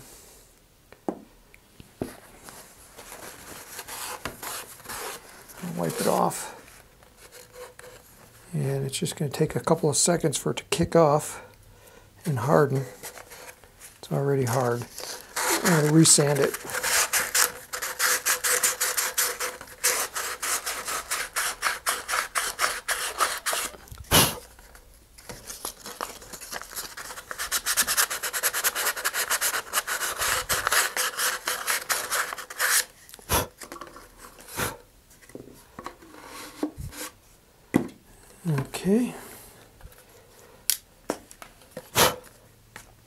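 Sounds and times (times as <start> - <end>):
sandpaper rubbing inside cardboard tube: 14.8 - 24.5, 26.8 - 32.9.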